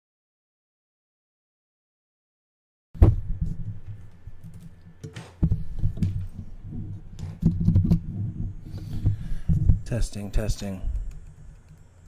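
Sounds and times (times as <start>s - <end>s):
dull thumps: 3.0s - 10.0s
low hum: 3.0s - 12.0s.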